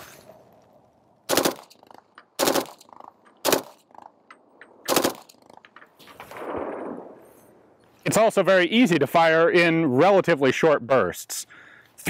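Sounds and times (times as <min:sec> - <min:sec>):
carbine firing automatic bursts: 0:01.3 - 0:03.9, 0:04.8 - 0:05.6.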